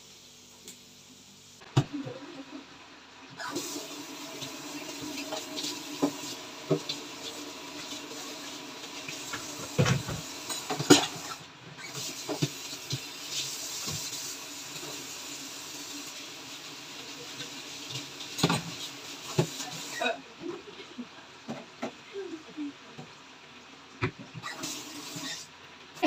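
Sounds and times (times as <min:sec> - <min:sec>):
dishes clattering: 0:09.3 - 0:11.4.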